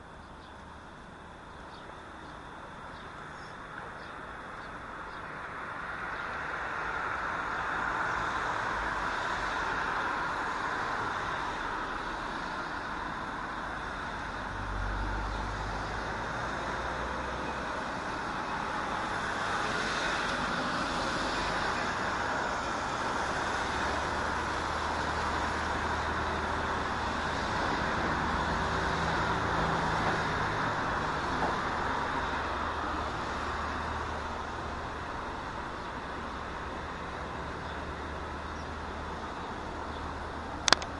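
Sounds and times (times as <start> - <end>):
road traffic: 0.0 - 40.9.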